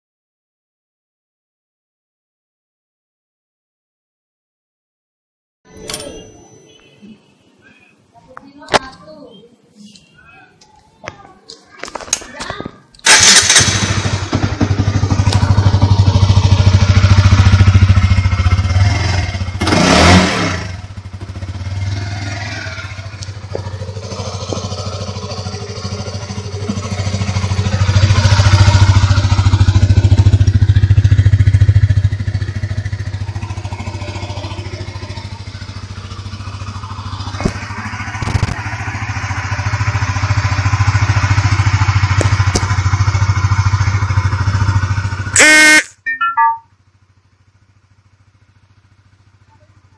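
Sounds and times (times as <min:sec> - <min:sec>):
motorcycle engine idling: 0:13.0 - 0:19.6, 0:20.5 - 0:45.8, 0:46.5 - 0:49.9.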